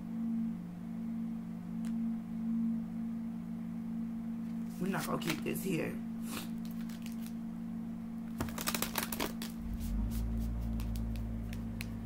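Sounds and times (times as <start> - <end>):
cards being shuffled by hand: 4.7 - 5.6, 6.3 - 7.4, 8.4 - 12.0.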